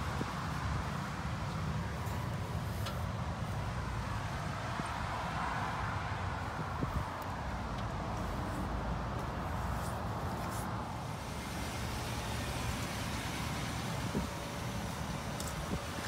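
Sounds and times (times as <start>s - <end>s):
light ticks: 2.8s - 3.0s, 7.2s - 8.0s.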